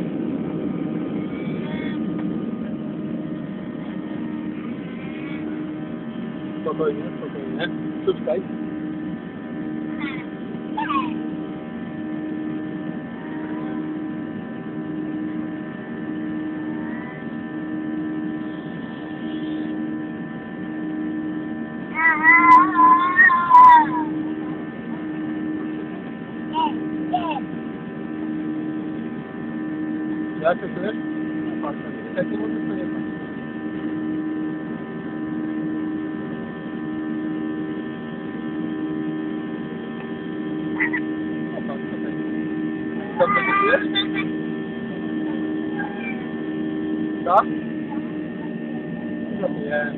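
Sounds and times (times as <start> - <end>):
airliner cabin engine drone: 0.0 - 49.9.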